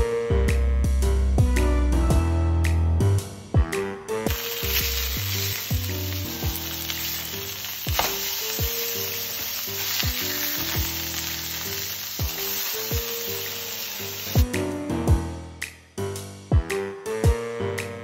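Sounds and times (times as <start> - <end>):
background music with regular beat: 0.0 - 6.6, 7.8 - 11.0, 12.1 - 13.6, 14.3 - 18.0
steaks sizzling in a frying pan: 4.3 - 14.5.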